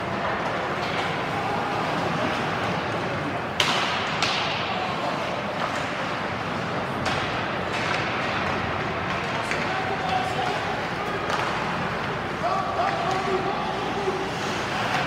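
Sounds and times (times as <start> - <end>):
arena noise: 0.0 - 15.0
sharp hockey cracks with echo: 0.1 - 15.0.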